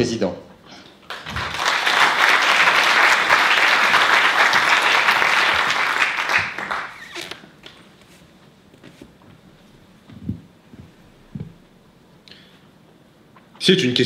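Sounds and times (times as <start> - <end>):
audience applauding: 1.1 - 7.2.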